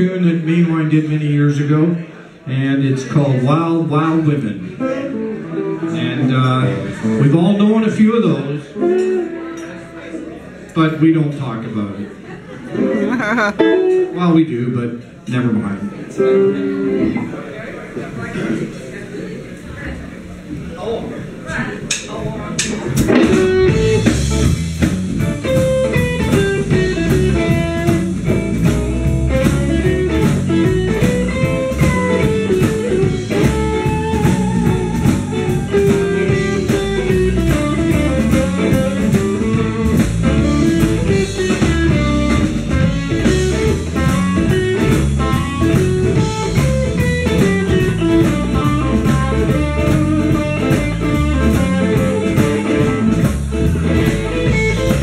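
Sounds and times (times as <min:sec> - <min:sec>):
electric guitar lines: 0:04.4 - 0:10.8, 0:12.7 - 0:18.9, 0:21.9 - 0:55.0
drum kit beat: 0:22.6 - 0:55.0.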